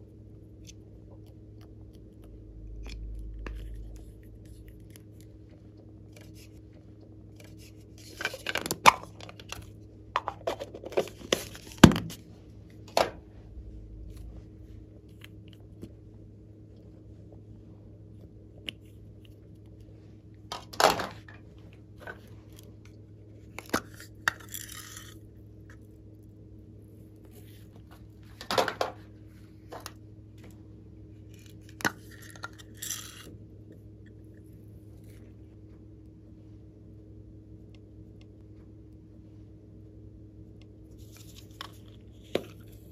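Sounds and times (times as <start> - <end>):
faint steady hum: 0.0 - 42.9.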